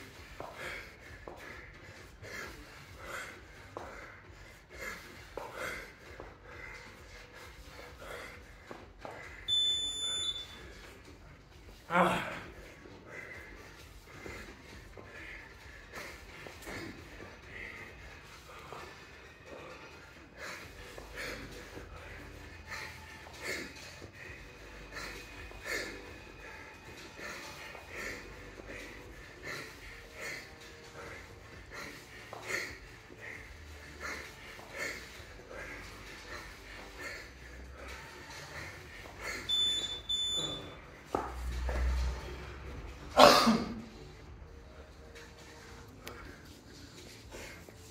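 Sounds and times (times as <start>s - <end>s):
man breathing hard: 0.0s - 47.9s
short high electronic beeps: 9.5s - 10.6s, 39.5s - 40.8s.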